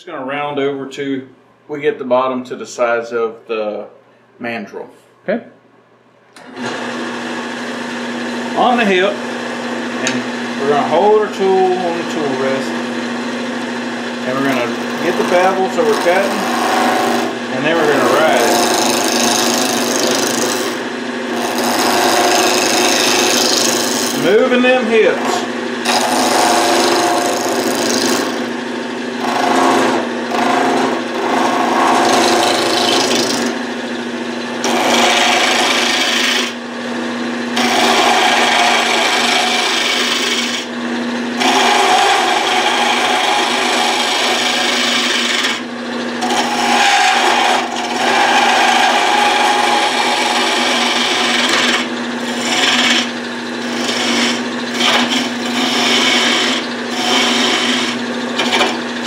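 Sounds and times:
lathe humming: 0:06.4 - 0:59.0
gouge scraping spinning wood: 0:06.6 - 0:59.0.

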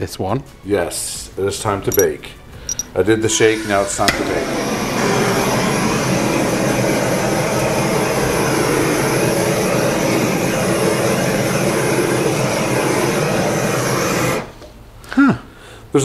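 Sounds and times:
torch flame hissing: 0:03.4 - 0:14.6.

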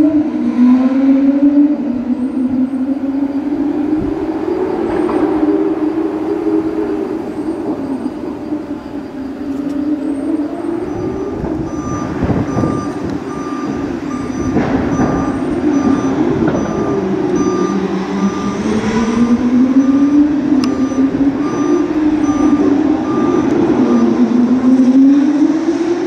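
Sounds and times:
diesel engine running under load: 0:02.0 - 0:25.2
warning beeper beeping: 0:06.3 - 0:25.0.

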